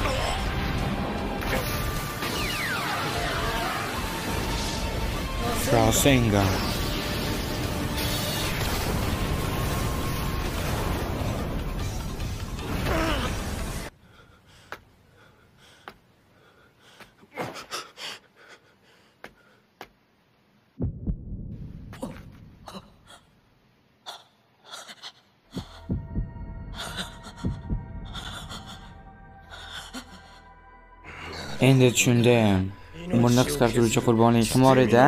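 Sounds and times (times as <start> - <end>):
low thumps: 20.8 - 22.7, 25.6 - 28.8
low rumble: 20.8 - 23.0, 25.6 - 31.0.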